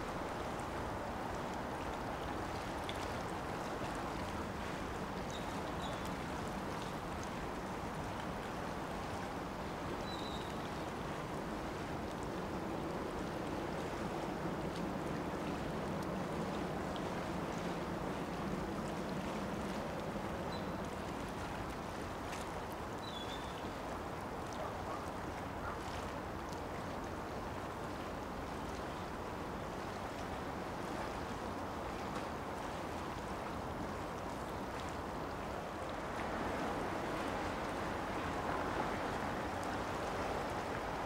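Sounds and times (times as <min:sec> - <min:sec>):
wind: 0:00.0 - 0:41.0
water lapping: 0:10.7 - 0:41.0.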